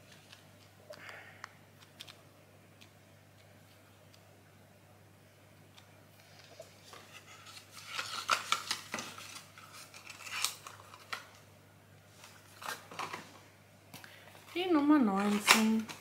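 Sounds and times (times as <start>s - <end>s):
cardboard packaging handled: 6.8s - 11.4s.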